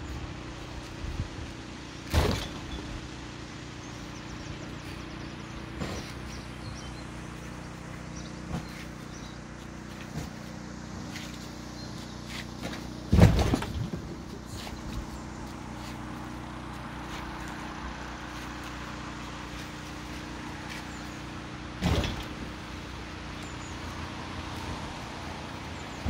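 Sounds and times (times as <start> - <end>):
diesel engine idling: 0.0 - 26.0
loud thumps: 2.1 - 2.9, 12.6 - 14.3, 21.8 - 22.6.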